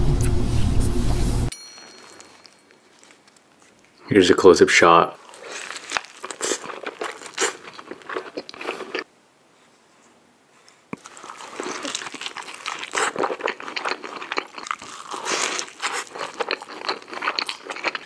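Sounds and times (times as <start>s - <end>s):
burrito being bitten and chewed: 2.0s - 4.0s, 5.2s - 9.1s, 10.7s - 18.0s.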